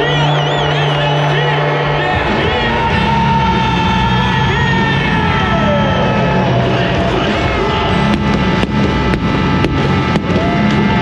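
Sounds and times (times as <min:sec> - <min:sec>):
music over loudspeakers: 0:00.0 - 0:11.0
stadium crowd din: 0:00.0 - 0:11.0
sharp hits: 0:08.0 - 0:11.0.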